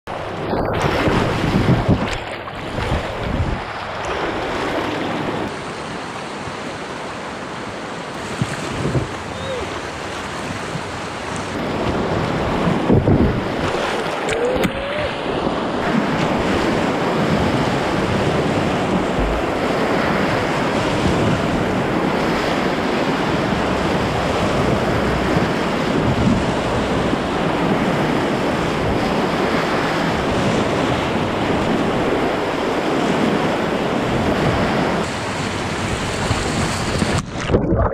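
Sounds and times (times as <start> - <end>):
wind noise on microphone: 0.1 - 5.6, 8.2 - 37.9
whitewater rushing and splashing: 0.1 - 37.6.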